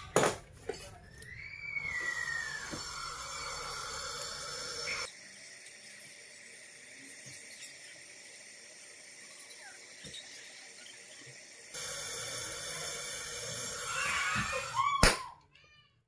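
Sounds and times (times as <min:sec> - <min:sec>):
gliding whistle: 0:01.1 - 0:05.1
gas torch hissing: 0:01.4 - 0:14.9.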